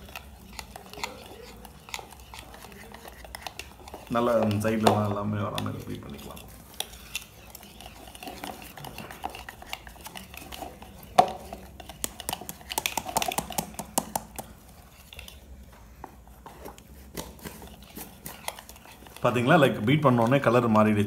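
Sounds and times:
whisk clicking against bowl: 0:00.0 - 0:15.4.

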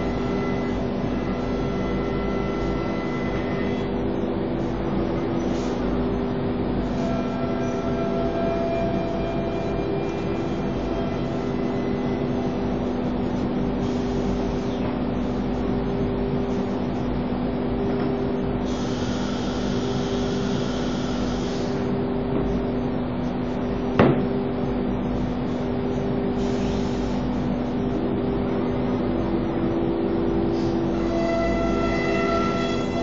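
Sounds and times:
cnc router spindle humming: 0:00.0 - 0:33.0
hiss: 0:05.4 - 0:06.0, 0:13.8 - 0:14.7, 0:18.6 - 0:21.9, 0:26.3 - 0:27.5.

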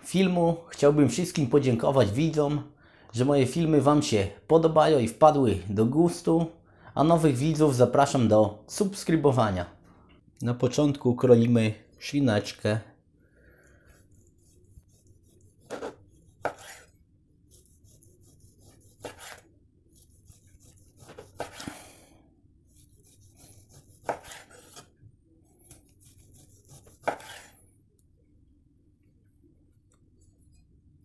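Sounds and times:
knife slicing on wooden board: 0:14.0 - 0:21.8, 0:22.7 - 0:24.9, 0:25.6 - 0:27.6.

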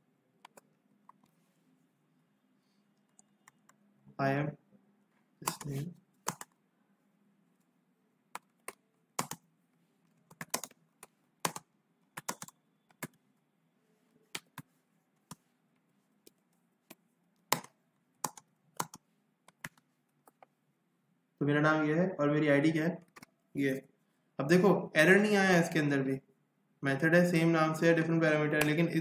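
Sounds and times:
keyboard typing: 0:05.4 - 0:06.6, 0:08.3 - 0:13.2, 0:14.2 - 0:15.5, 0:16.2 - 0:20.5, 0:23.0 - 0:23.3.

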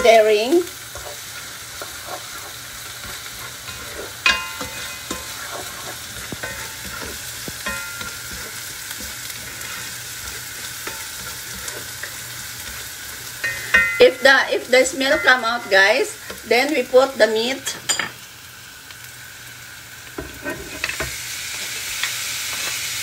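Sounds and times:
spoon stirring and scraping pan: 0:00.0 - 0:18.3, 0:20.0 - 0:23.0
onion and garlic sizzling in oil: 0:00.0 - 0:23.0
spoon knocking on pan: 0:03.0 - 0:05.4, 0:06.2 - 0:09.2, 0:10.3 - 0:14.3.

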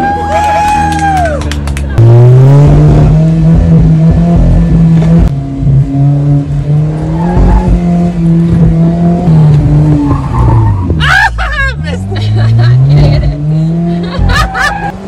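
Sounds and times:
car engine pulling hard: 0:00.0 - 0:15.0.

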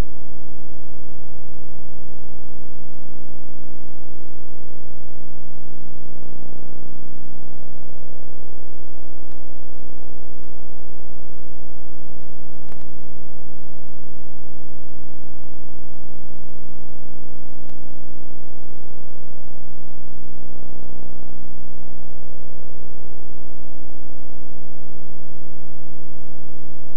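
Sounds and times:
electrical hum and buzz: 0:00.0 - 0:26.9
faint clicks: 0:12.7 - 0:12.9.

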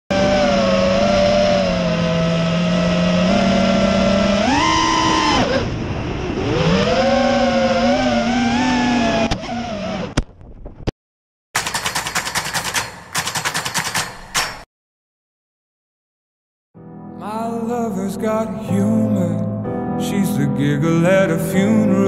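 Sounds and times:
quadcopter motors whining: 0:00.1 - 0:10.2.

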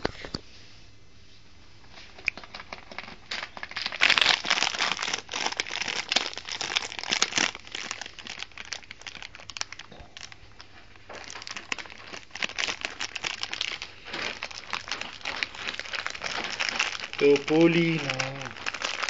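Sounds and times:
dry hay rustling and crackling: 0:11.2 - 0:19.0.

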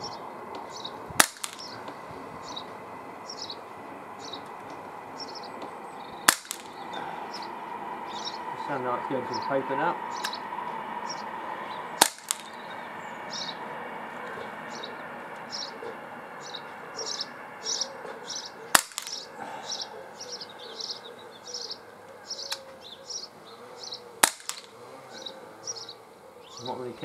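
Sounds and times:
high chirping: 0:00.0 - 0:27.0
pellet pistol shots: 0:01.2 - 0:01.7, 0:06.2 - 0:06.8, 0:12.0 - 0:12.6, 0:18.7 - 0:19.3, 0:24.2 - 0:24.8.

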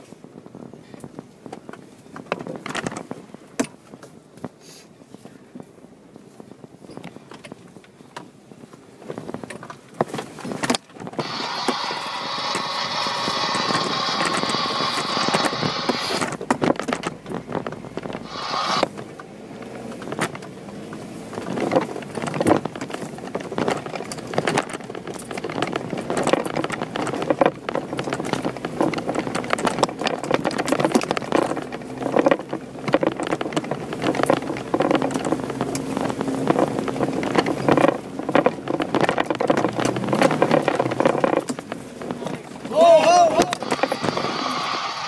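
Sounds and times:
knocks and rattles over rocks: 0:01.0 - 0:04.6, 0:06.8 - 0:44.8
car engine running: 0:10.5 - 0:45.0.

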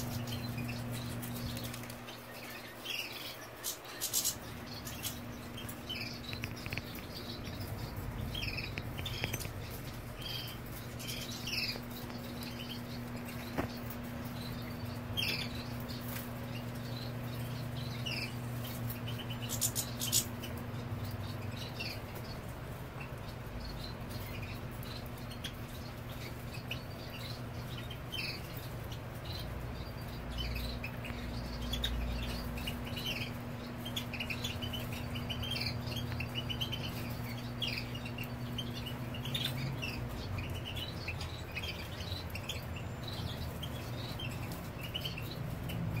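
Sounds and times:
finches twittering: 0:00.0 - 0:46.0
steady low hum: 0:00.0 - 0:46.0.

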